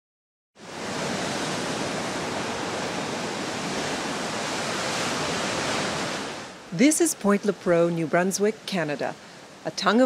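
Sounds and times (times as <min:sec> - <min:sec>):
surf breaking on rocks: 0:00.7 - 0:06.6.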